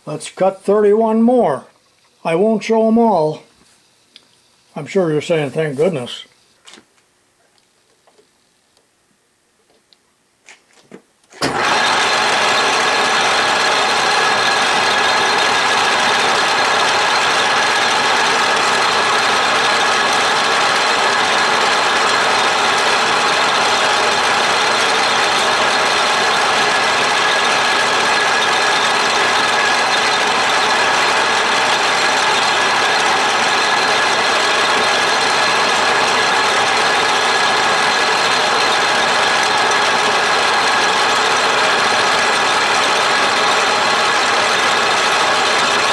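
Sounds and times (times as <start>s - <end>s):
lathe cutting gear tooth: 11.4s - 45.9s.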